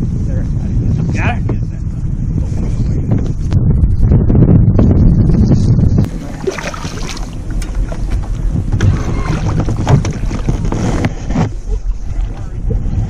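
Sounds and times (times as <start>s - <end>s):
wind rumbling on microphone: 0.0s - 13.0s
fish splashing at water surface: 6.1s - 8.3s.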